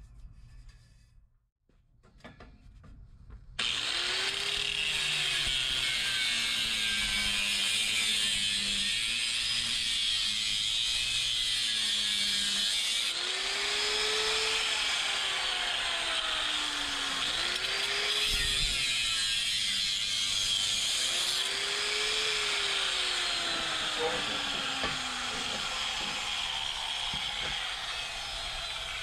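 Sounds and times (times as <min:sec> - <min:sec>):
angle grinder cutting metal: 0:03.6 - 0:29.0.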